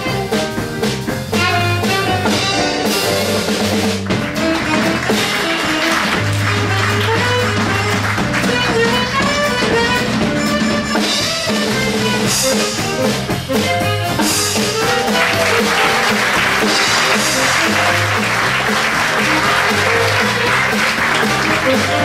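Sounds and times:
upbeat music with drums and brass: 0.0 - 22.0
audience applause: 4.0 - 9.3, 14.5 - 22.0.

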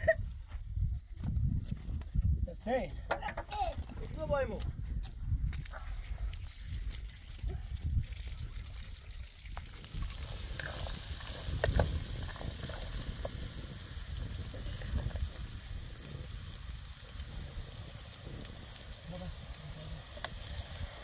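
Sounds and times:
vegetables sizzling in pan: 9.7 - 21.0.

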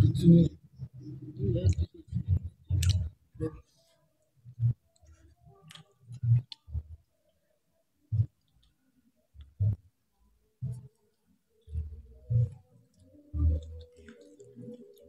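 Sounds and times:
mouth clicks and chewing: 1.4 - 3.1, 4.5 - 7.0, 8.2 - 8.8, 10.6 - 15.0.

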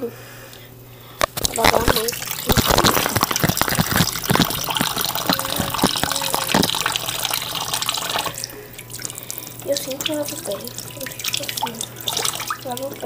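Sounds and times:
hands rubbing under water: 1.2 - 8.4
water running from a tap: 1.2 - 13.0
water splashing: 1.2 - 13.0.

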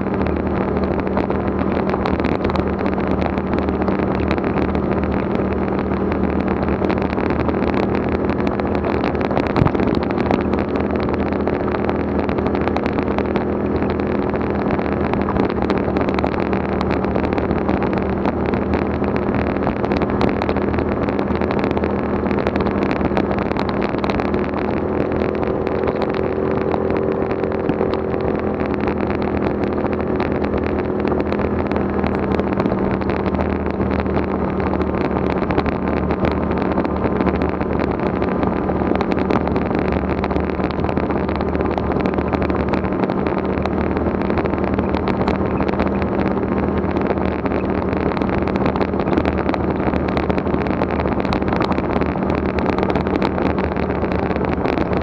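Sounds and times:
vehicle engine running steadily: 0.0 - 55.0.

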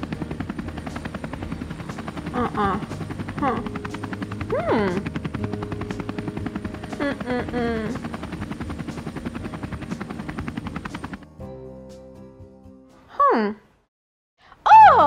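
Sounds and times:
helicopter rotor chopping: 0.0 - 11.3
soft music: 0.0 - 13.9.

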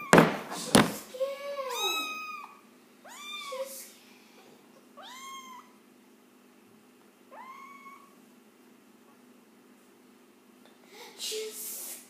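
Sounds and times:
kitten mewing: 1.7 - 3.6.

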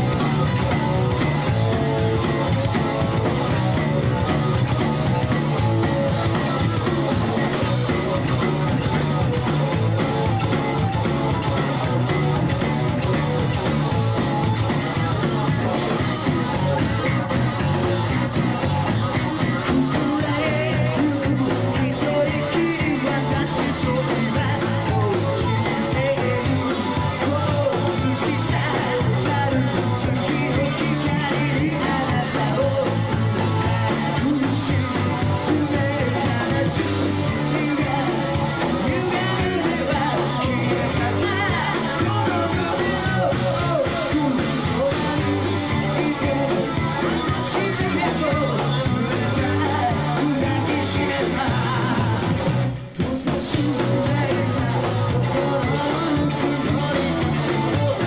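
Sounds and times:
live rock band playing: 0.0 - 58.0
steady drumbeat: 0.0 - 58.0
singer singing into microphone: 19.4 - 58.0.

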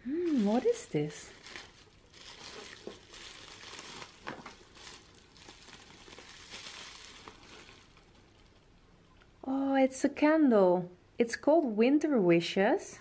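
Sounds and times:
packing paper and bubble wrap crinkling: 0.0 - 8.6.

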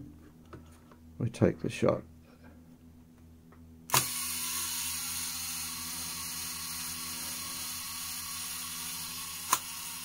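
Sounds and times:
clockwork mechanism whirring: 3.9 - 10.0.

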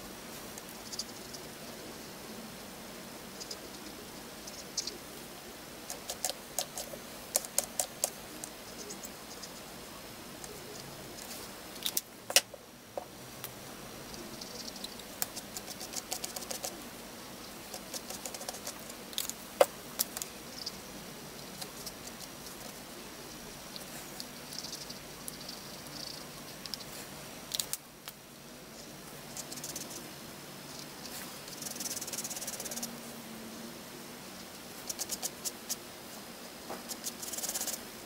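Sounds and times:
markers clicking and tapping: 5.8 - 9.6, 14.4 - 16.8, 17.6 - 20.7, 29.3 - 30.0, 31.0 - 32.9, 34.8 - 35.8, 36.8 - 37.8.

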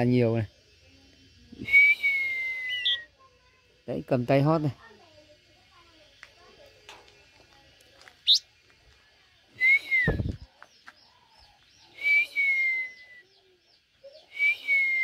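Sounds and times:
bird whistling: 1.6 - 3.2, 8.2 - 8.5, 9.5 - 10.4, 11.9 - 13.4, 14.1 - 15.0
soft high bird chips: 6.0 - 8.9.

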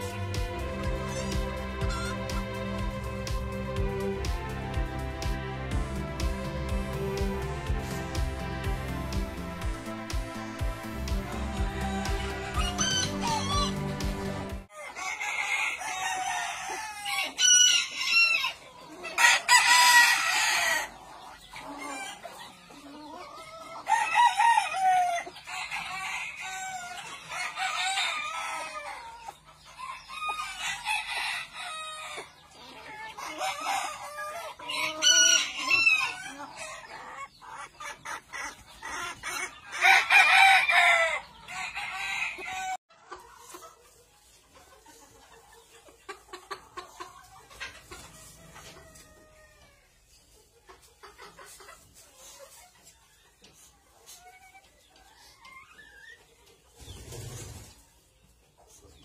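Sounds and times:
roosters crowing: 0.0 - 3.8, 10.4 - 42.8, 47.8 - 50.0
hens clucking: 0.0 - 59.0.

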